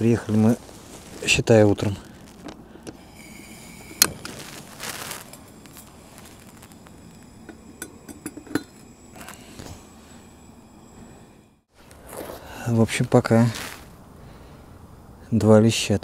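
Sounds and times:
metal cookware clinking: 0:07.4 - 0:08.9.

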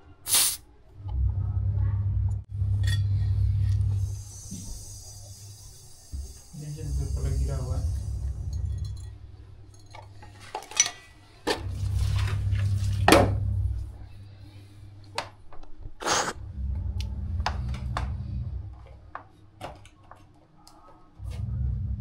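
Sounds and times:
gas hiss bursts: 0:00.2 - 0:00.6, 0:03.8 - 0:08.8, 0:16.0 - 0:16.4
low steady hum: 0:00.9 - 0:15.6, 0:16.4 - 0:19.9, 0:21.2 - 0:22.0
metal fittings clinking: 0:08.4 - 0:11.1.

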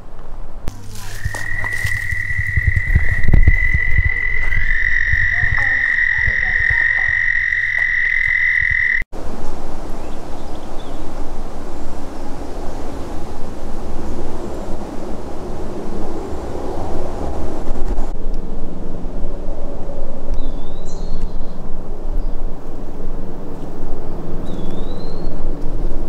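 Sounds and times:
low rumbling thumps: 0:00.7 - 0:08.8
high-pitched animal trill: 0:00.7 - 0:09.0.

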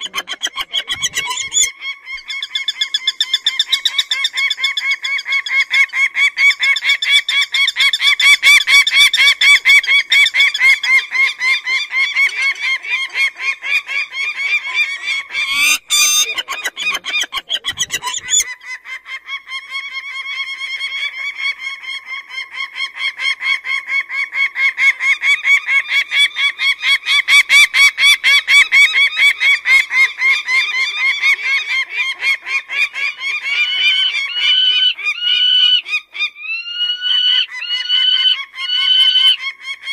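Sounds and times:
falcon cackling call: 0:00.0 - 0:02.2, 0:07.8 - 0:19.2.

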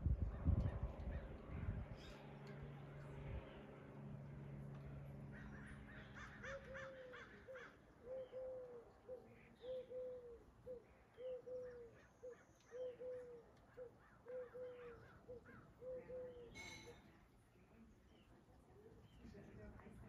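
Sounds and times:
crows cawing faintly: 0:05.3 - 0:16.5
dove cooing: 0:06.2 - 0:16.7.

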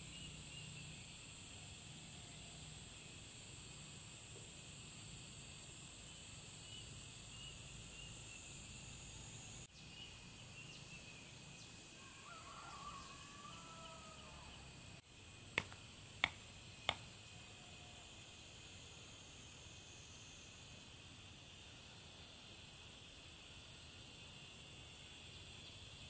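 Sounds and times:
high-pitched insect drone: 0:00.0 - 0:15.4.

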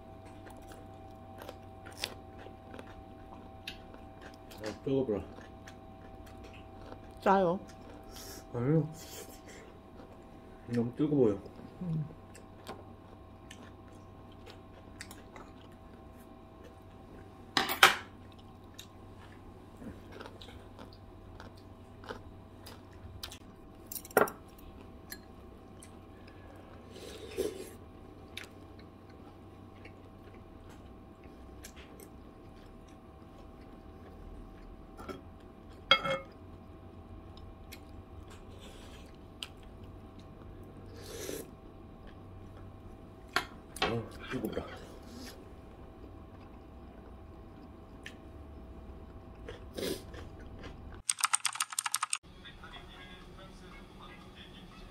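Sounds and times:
faint steady hum: 0:00.0 - 0:51.0
quiet chewing: 0:00.2 - 0:08.4, 0:09.1 - 0:17.4, 0:18.2 - 0:23.8, 0:24.6 - 0:43.0, 0:44.1 - 0:48.3
chopsticks clinking on ceramic bowls: 0:35.9 - 0:36.4.

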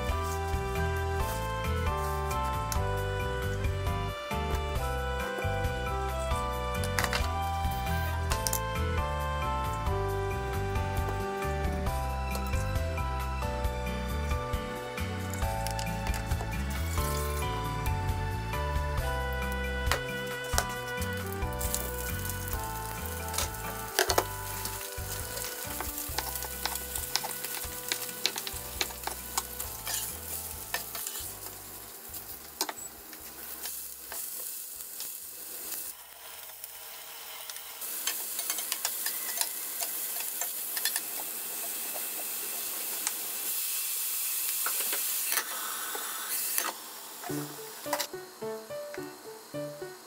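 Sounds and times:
fish sizzling in a pan: 0:15.4 - 0:48.4.

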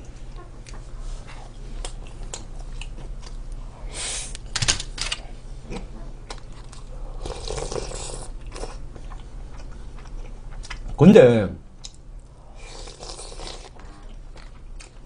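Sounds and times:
light chewing: 0:00.0 - 0:03.7, 0:05.7 - 0:11.0, 0:11.8 - 0:15.0
slurp: 0:12.6 - 0:13.8.

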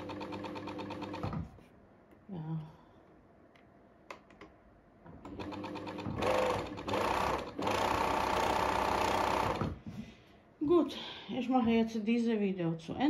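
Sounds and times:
sewing machine running: 0:00.0 - 0:01.4, 0:05.2 - 0:09.8.

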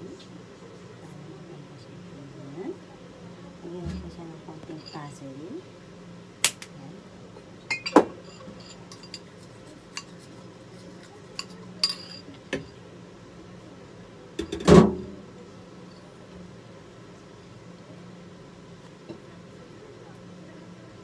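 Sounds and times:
utensil clinking against ceramic bowl: 0:07.7 - 0:12.8.

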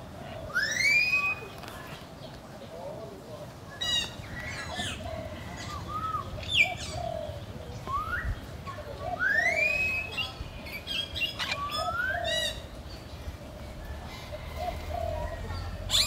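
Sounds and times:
rising whistled calls: 0:00.5 - 0:01.5, 0:07.8 - 0:08.5, 0:09.2 - 0:12.6.

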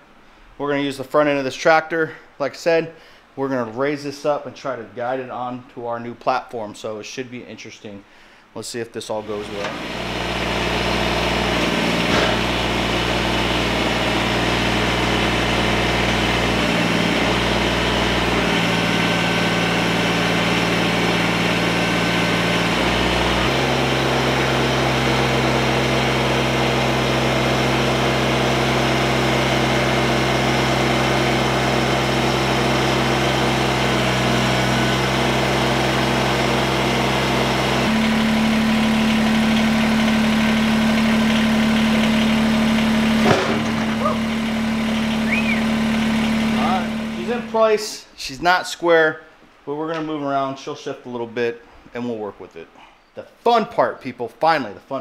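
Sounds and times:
tractor diesel engine running: 0:09.2 - 0:47.7.

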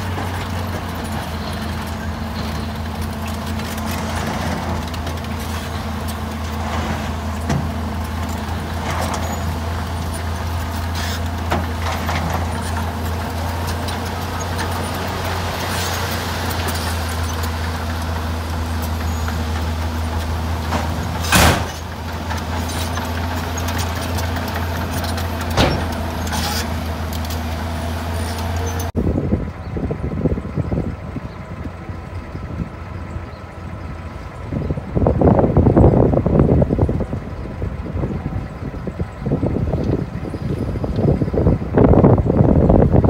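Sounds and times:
soil and rock sliding: 0:00.0 - 0:29.0
diesel truck engines droning: 0:00.0 - 0:43.0.

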